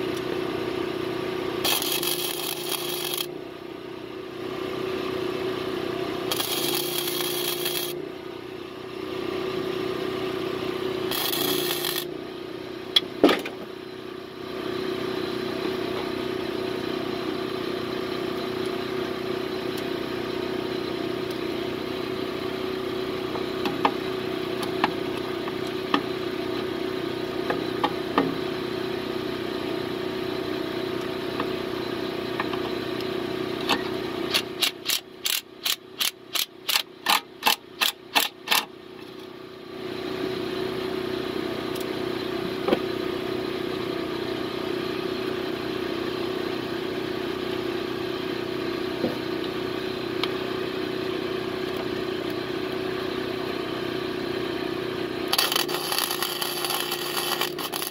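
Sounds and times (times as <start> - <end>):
mechanical hum: 0.0 - 57.9
ratchet clicking: 6.3 - 7.9, 11.1 - 12.0, 34.3 - 38.7.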